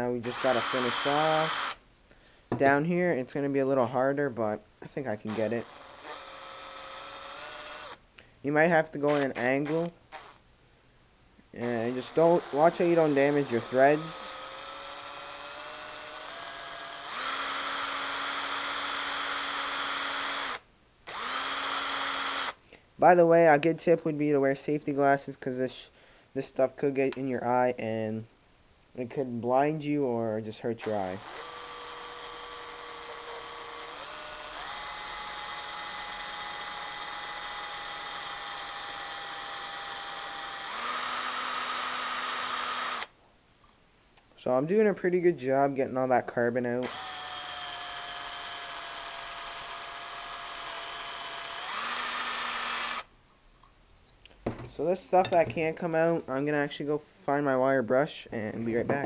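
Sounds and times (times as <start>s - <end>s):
cordless drill motor whining: 0.3s - 1.8s, 5.3s - 8.0s, 9.1s - 10.4s, 12.0s - 22.6s, 31.2s - 43.1s, 46.8s - 53.1s.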